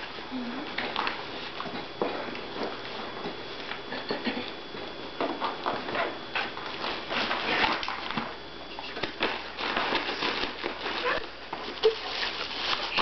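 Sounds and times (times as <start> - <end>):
plastic bags rustling and crinkling: 6.4 - 13.0.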